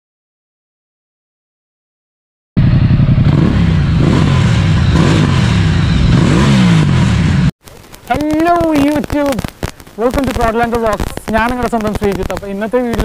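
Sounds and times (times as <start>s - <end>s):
motorcycle engine revving: 2.6s - 7.6s.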